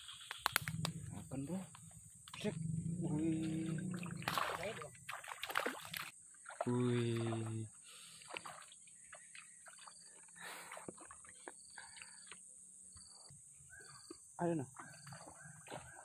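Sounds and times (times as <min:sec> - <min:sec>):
fish splashing in water: 0:03.2 - 0:12.1.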